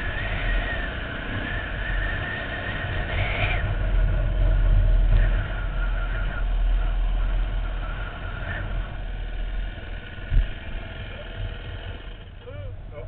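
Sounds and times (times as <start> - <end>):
dirt bike engine: 0.0 - 13.0.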